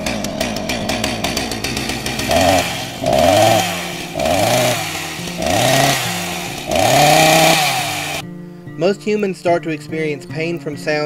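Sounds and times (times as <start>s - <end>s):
chainsaw revving and idling: 0.0s - 8.2s.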